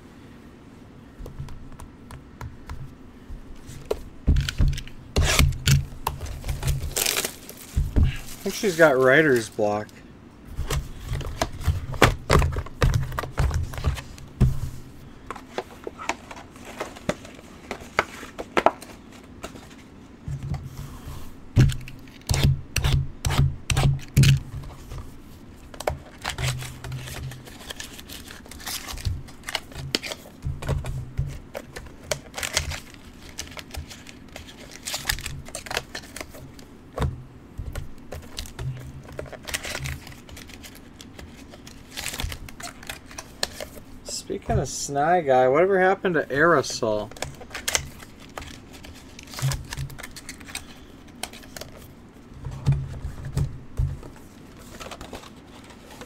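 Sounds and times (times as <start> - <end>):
packaging crinkling and tearing: 4.4 - 9.6, 26.0 - 30.3, 31.4 - 36.7, 38.1 - 43.8, 47.1 - 51.9.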